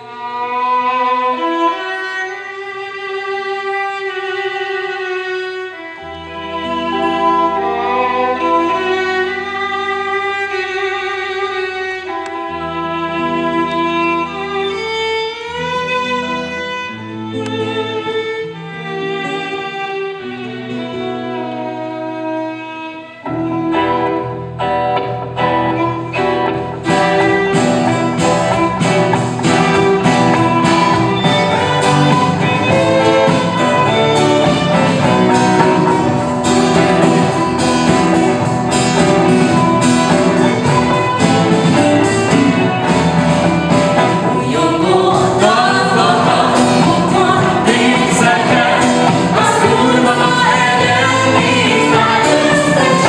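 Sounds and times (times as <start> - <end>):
electric guitars: 0.0 - 53.0
violin melody: 0.0 - 53.0
steady drum beat: 26.7 - 53.0.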